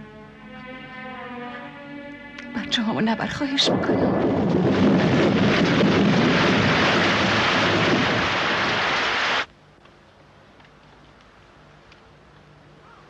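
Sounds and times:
loud steady rushing noise: 0.0s - 9.5s.

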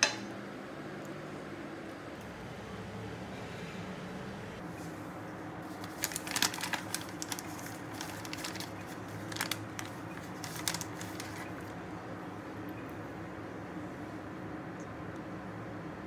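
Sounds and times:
steady low hum: 0.0s - 16.0s
paper bag crinkling: 5.7s - 11.7s.

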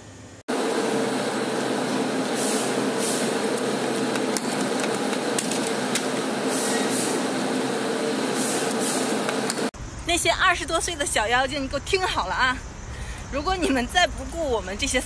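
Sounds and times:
machine mechanical hum: 0.0s - 10.1s.

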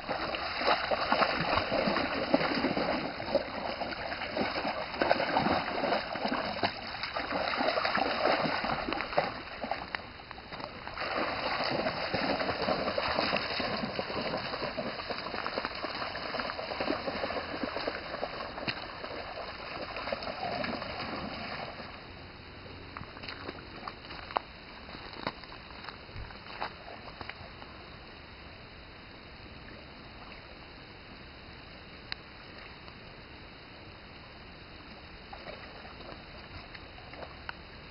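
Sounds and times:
dogs splashing through water: 0.0s - 22.1s
stream trickling: 0.0s - 37.9s.

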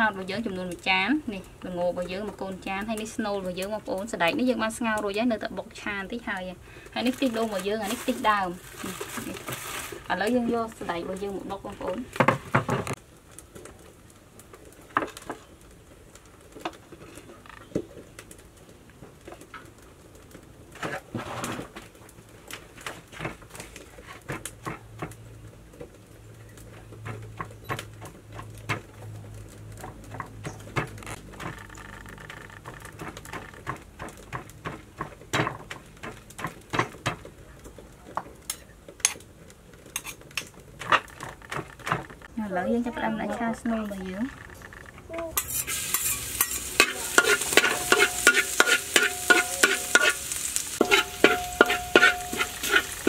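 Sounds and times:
pestle pounding in stone mortar: 32.6s - 37.2s, 50.8s - 53.0s.

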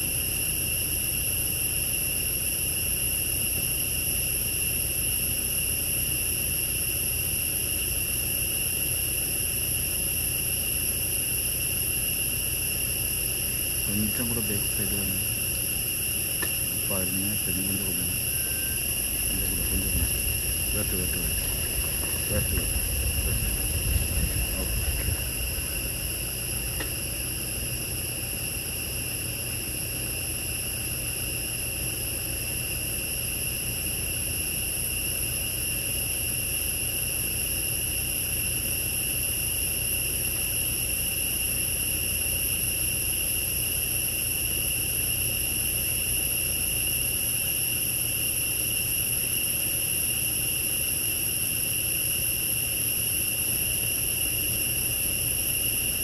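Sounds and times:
insects buzzing: 0.0s - 56.0s
low rumble: 18.8s - 27.9s.

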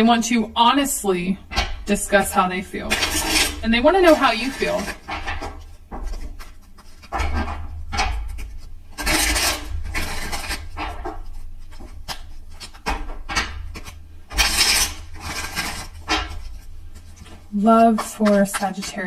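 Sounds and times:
cards being shuffled: 11.3s - 19.0s.

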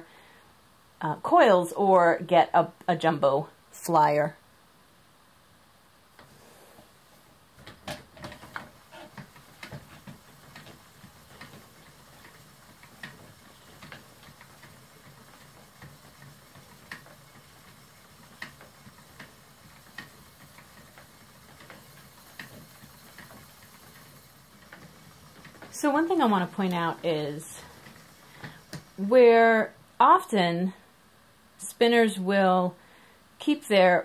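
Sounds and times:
spinning wheel clicking and knocking: 7.6s - 29.8s.

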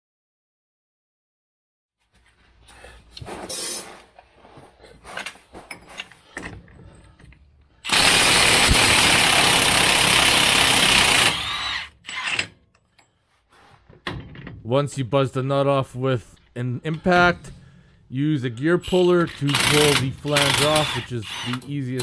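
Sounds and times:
parts knocking and rattling: 4.8s - 14.8s, 18.9s - 22.0s
impact wrench hammering: 19.5s - 21.6s.

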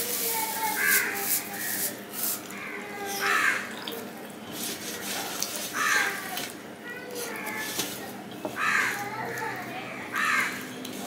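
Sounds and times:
crows cawing: 0.8s - 1.8s, 2.6s - 3.7s, 5.8s - 6.2s, 8.6s - 9.5s, 10.1s - 10.6s.

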